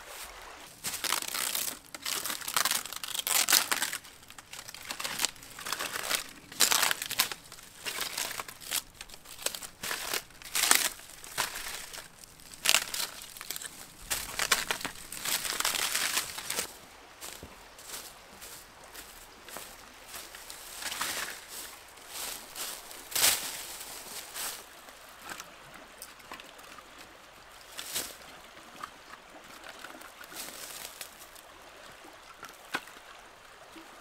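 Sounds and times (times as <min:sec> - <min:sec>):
bark peeling and tearing: 0:01.0 - 0:16.7.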